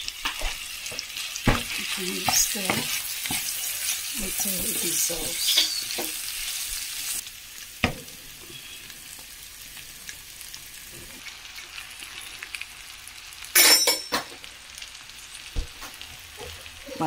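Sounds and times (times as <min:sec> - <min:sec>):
wooden spoon stirring in metal pan: 0:00.0 - 0:09.3
faint steady sizzle: 0:00.0 - 0:17.0.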